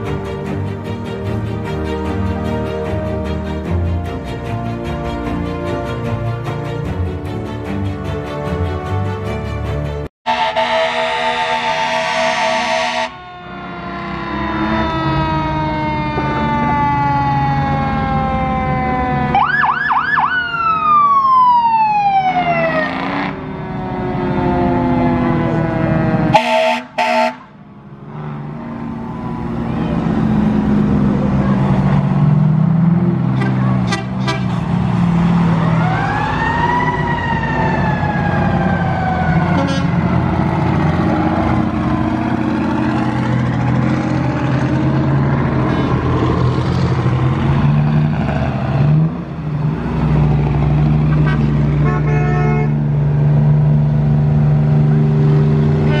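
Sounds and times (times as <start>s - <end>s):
diesel truck engines: 0.0s - 56.0s
deep engine drone: 27.7s - 56.0s.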